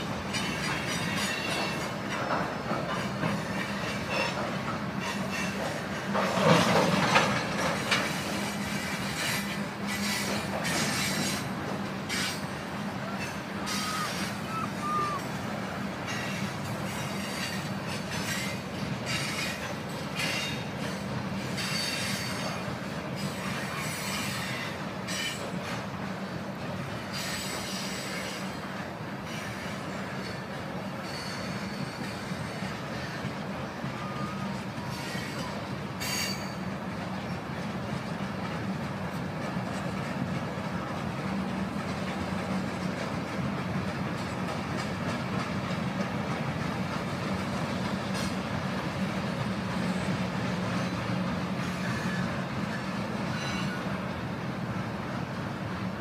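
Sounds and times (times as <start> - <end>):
train wheels rumbling on rail: 0.0 - 56.0
wheels clicking over rail joints: 0.0 - 56.0
high wheel squeals: 12.1 - 15.4, 29.3 - 36.7, 49.9 - 54.1.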